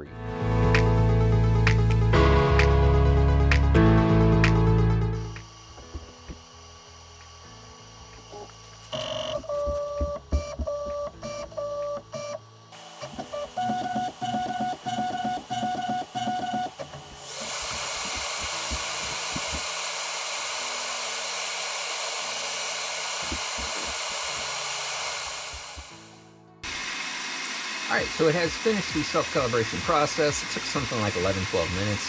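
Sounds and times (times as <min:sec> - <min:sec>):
fan rushing hiss: 0:04.6 - 0:10.1, 0:12.5 - 0:32.0
printer motor buzzes: 0:05.2 - 0:26.2, 0:27.3 - 0:32.0.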